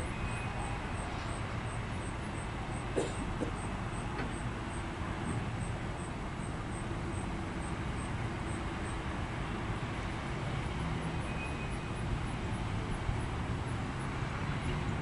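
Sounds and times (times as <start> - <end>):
train wheels rumbling on rail: 0.0 - 4.5.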